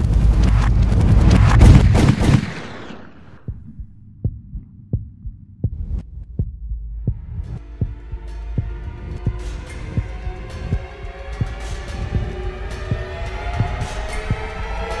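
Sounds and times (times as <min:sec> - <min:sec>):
heartbeat thumps: 0:00.0 - 0:02.4, 0:03.3 - 0:14.7
harsh noise with sharp cracks: 0:00.0 - 0:04.7
low hum: 0:00.0 - 0:15.0.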